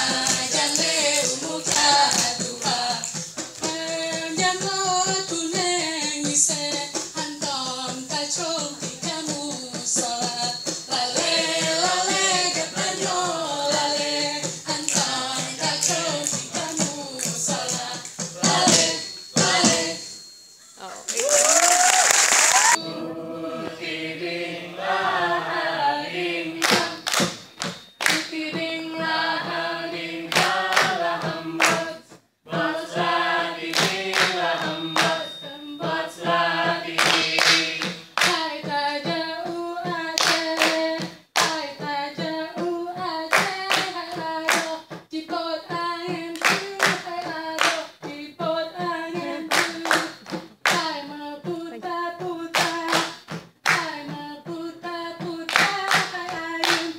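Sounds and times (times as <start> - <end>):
hands clapping: 0.0 - 3.8, 13.8 - 19.8, 21.0 - 22.8, 26.6 - 28.4, 30.3 - 31.9, 33.6 - 35.4, 36.9 - 38.5, 40.1 - 41.7, 43.3 - 44.8, 46.4 - 48.0, 49.2 - 51.0, 52.5 - 54.1, 55.5 - 56.9
group singing: 0.0 - 20.3, 22.5 - 53.1, 53.7 - 56.9.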